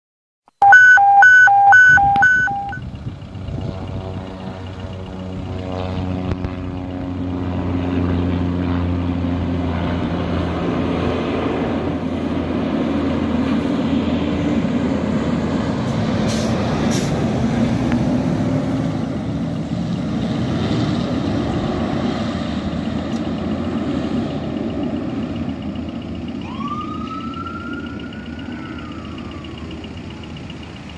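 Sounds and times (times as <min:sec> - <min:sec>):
siren wail: 0:00.6 - 0:02.8, 0:26.0 - 0:30.8
diesel engine driving past: 0:02.8 - 0:30.9.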